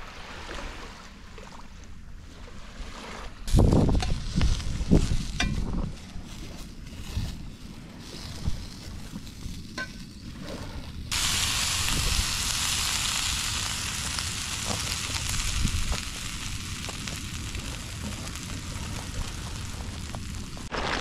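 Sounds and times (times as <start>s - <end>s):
sausages sizzling in a pan: 11.1s - 20.7s.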